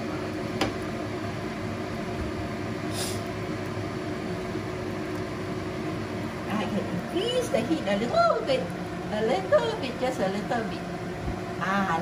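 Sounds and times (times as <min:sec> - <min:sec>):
low frying noise: 0:00.0 - 0:12.0
short higher hiss: 0:02.9 - 0:03.3.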